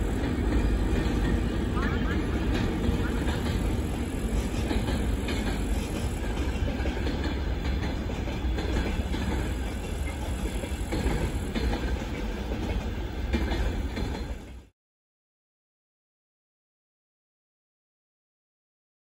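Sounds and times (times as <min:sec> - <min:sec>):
wheels clattering over rail joints: 0:00.0 - 0:14.6
freight train rumbling past: 0:00.0 - 0:14.7.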